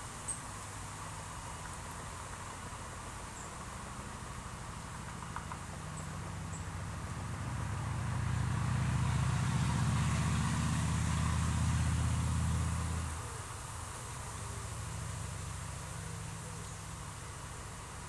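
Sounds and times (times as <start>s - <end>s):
outdoor hiss: 10.6s - 18.0s.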